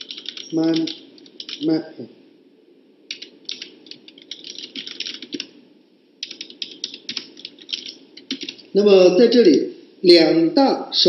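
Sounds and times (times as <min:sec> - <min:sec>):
laptop keyboard typing: 0:00.0 - 0:01.7, 0:03.1 - 0:05.6, 0:06.2 - 0:08.7.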